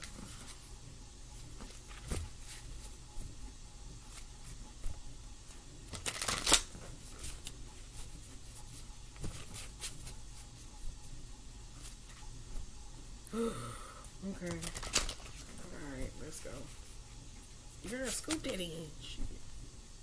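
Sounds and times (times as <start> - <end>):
riffle of cards: 5.9 - 7.5
cards being shuffled: 5.9 - 10.2, 14.4 - 16.8, 17.8 - 19.3.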